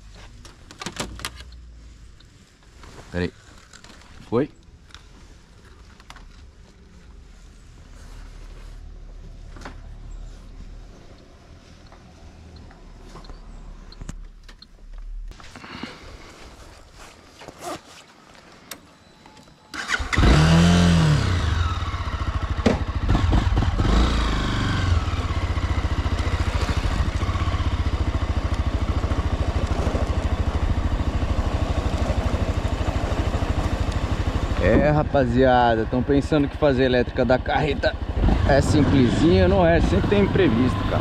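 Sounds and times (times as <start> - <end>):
motorcycle engine starting and revving: 19.7 - 41.0.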